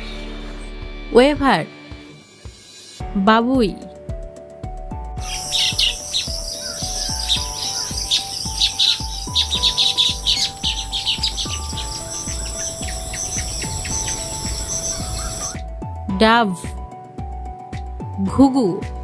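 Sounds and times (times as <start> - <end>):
music with a steady beat: 0.0 - 18.2
birds chirping: 5.2 - 15.6
steady high drone: 5.2 - 15.6.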